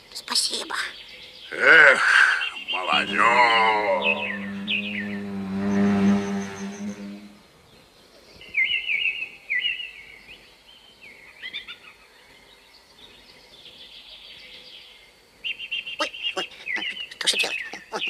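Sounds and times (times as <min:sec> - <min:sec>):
small bird twittering: 0:16.0 - 0:18.0.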